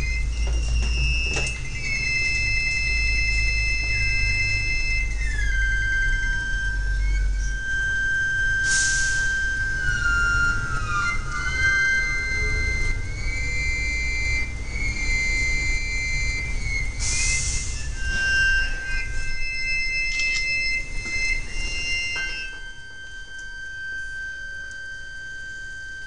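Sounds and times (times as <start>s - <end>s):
sliding high synth tones: 0.0s - 24.7s
low droning synth bass: 0.0s - 25.6s
burst of hiss: 8.6s - 9.4s, 17.0s - 17.8s.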